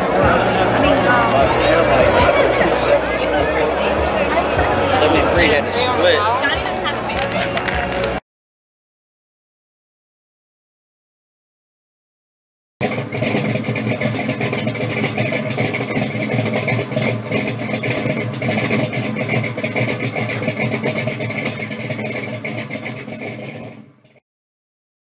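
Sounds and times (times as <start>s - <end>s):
car engine running: 0.0s - 8.2s, 12.8s - 24.2s
steady high tone: 0.0s - 8.2s.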